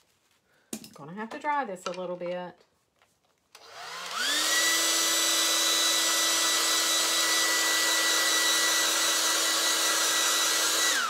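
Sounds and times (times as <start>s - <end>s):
hair dryer running: 3.6s - 11.0s.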